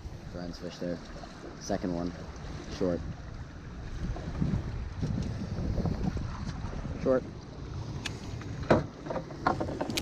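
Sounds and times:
water slapping boat hull: 0:00.0 - 0:10.0
gusty wind on microphone: 0:02.8 - 0:09.0.

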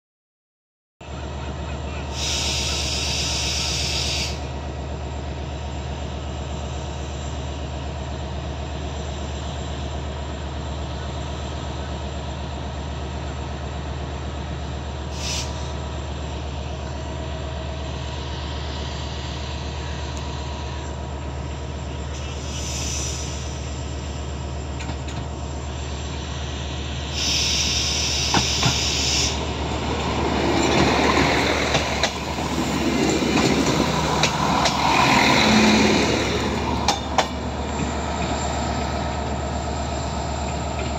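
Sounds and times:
diesel train engine droning: 0:01.0 - 0:40.9
loud air hiss: 0:02.1 - 0:04.5, 0:15.1 - 0:15.7, 0:22.2 - 0:23.6, 0:27.0 - 0:29.8.

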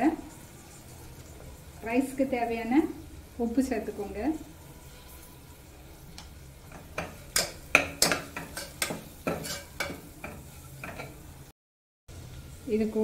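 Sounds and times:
spoon scraping metal pot: 0:06.7 - 0:11.2.

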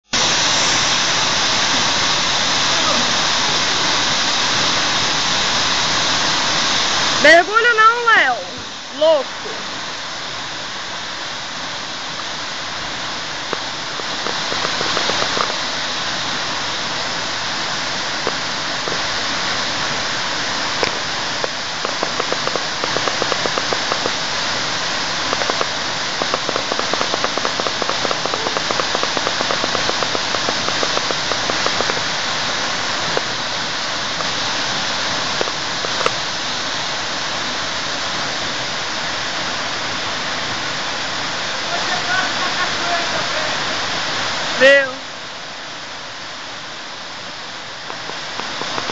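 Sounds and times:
waterfall rushing: 0:00.0 - 0:48.9
small sharp ticks: 0:13.5 - 0:15.6, 0:20.8 - 0:24.2, 0:25.3 - 0:32.0, 0:35.4 - 0:36.2, 0:47.9 - 0:48.9.

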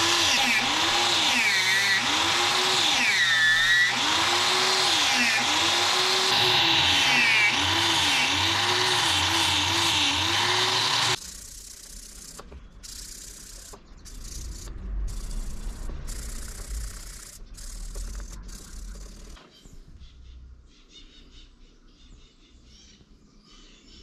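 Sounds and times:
angle grinder sanding a knife: 0:00.0 - 0:14.6.

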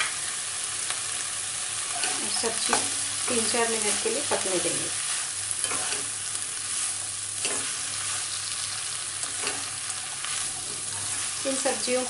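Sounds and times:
vegetables sizzling in a pan: 0:00.0 - 0:12.0
spatula scraping a pan: 0:01.8 - 0:11.7.

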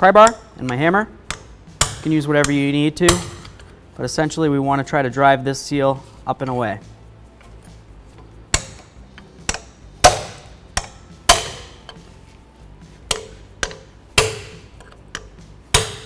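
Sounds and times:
hammer striking pry bar: 0:00.2 - 0:03.6, 0:08.5 - 0:12.0, 0:13.0 - 0:16.0.

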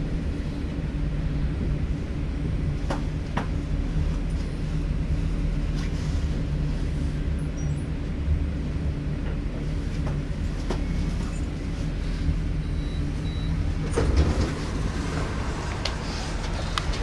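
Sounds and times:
train interior low hum: 0:00.0 - 0:17.0
wheels clicking on track: 0:13.9 - 0:17.0.

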